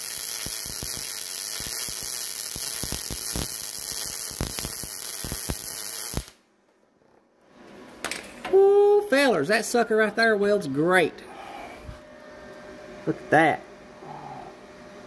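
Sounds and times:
welding arc buzzing with pops: 0.0s - 6.5s.

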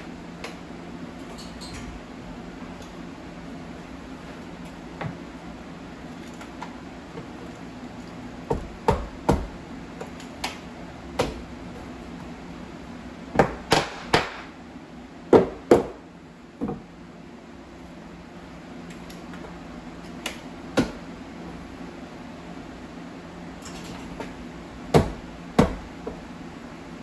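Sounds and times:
sharp knocks on wooden molding: 13.3s - 14.5s, 15.3s - 16.0s, 24.9s - 26.2s.

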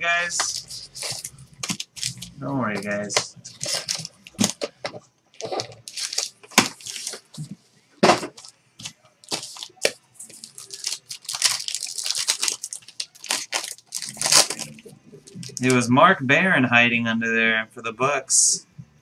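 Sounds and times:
foil card pack crinkling: 0.4s - 4.7s, 5.4s - 7.4s, 8.3s - 15.9s
cardboard clicks and rustles: 2.8s - 15.8s
foil pack being torn open: 5.4s - 7.2s, 9.2s - 14.8s.

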